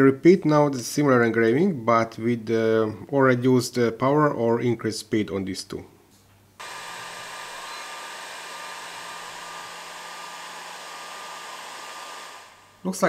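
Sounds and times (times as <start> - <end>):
laser engraver fan rushing: 6.6 - 13.0
thin whine: 6.6 - 13.0.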